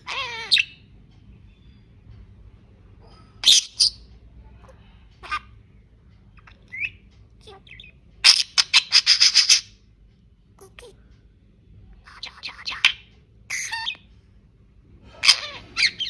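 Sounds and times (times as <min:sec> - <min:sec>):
budgerigar chirping and squawking: 0:00.0 - 0:00.9, 0:03.4 - 0:04.1, 0:05.2 - 0:05.6, 0:06.4 - 0:09.8, 0:12.1 - 0:14.1, 0:15.2 - 0:16.0.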